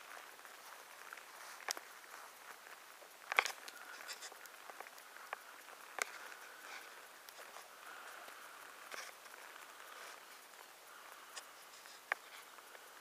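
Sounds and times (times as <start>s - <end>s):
faint outdoor ambience: 0.0s - 13.0s.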